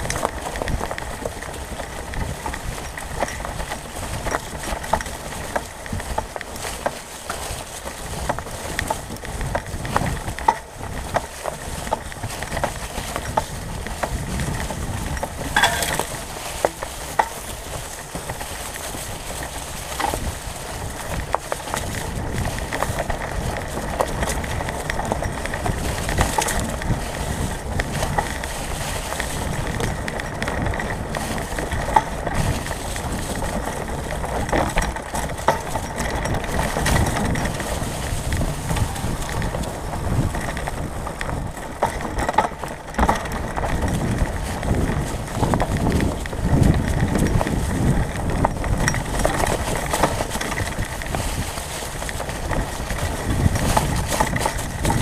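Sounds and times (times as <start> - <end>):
bike knocking and rattling: 0.0 - 55.0
bike tyres rolling over leaves: 0.0 - 55.0.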